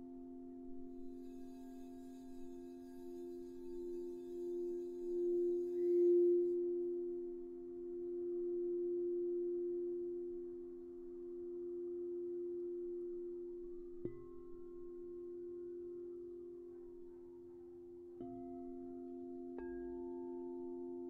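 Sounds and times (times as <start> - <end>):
singing bowls ringing: 0.0 - 7.4
faint high shimmer: 0.8 - 6.6.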